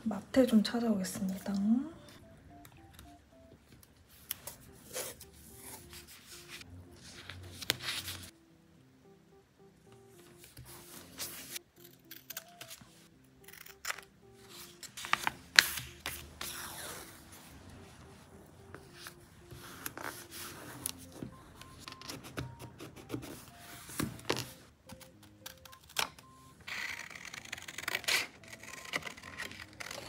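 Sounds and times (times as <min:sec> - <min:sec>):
soft background music: 0:00.0 - 0:30.0
paper rustling: 0:04.1 - 0:08.3, 0:14.4 - 0:21.3.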